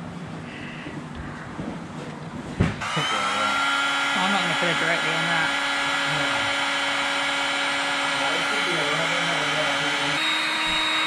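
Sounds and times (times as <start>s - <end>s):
heat gun fan whine: 2.6s - 11.0s.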